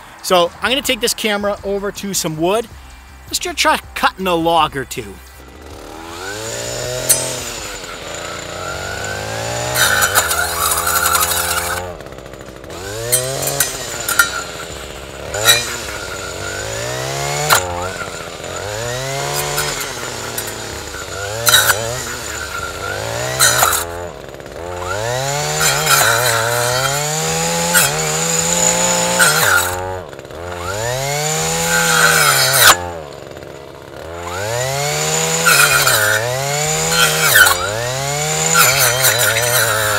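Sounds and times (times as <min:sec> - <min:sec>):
two-stroke trimmer engine revving: 0:00.0 - 0:01.8, 0:02.5 - 0:39.9
saw blade cracking into wood: 0:05.4 - 0:39.9.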